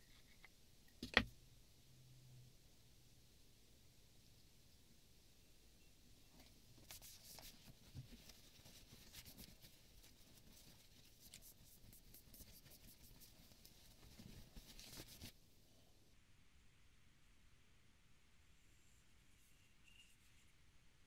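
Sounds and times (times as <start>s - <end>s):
cloth rag rustling: 6.8s - 15.4s.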